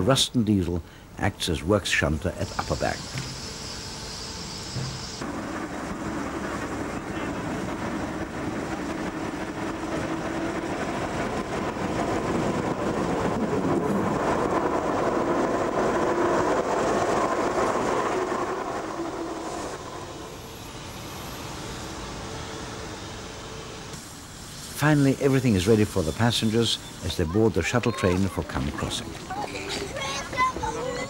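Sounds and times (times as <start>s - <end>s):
diesel locomotive engine: 0.0s - 31.0s
wheels on rails: 24.9s - 31.0s.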